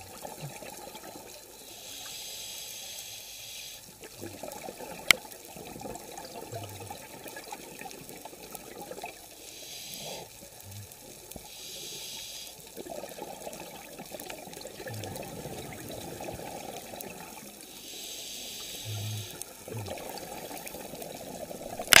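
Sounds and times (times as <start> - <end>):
regulator inhale hiss: 1.6 - 3.9, 9.4 - 10.4, 11.4 - 12.6, 17.7 - 19.4
exhaled bubbles gurgling: 12.8 - 17.8, 18.8 - 22.0.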